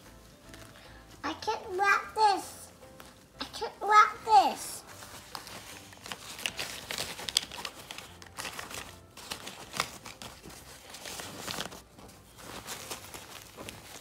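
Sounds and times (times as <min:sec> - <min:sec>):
fabric pouch rustling: 0:00.0 - 0:01.2, 0:02.3 - 0:03.4, 0:04.0 - 0:14.0.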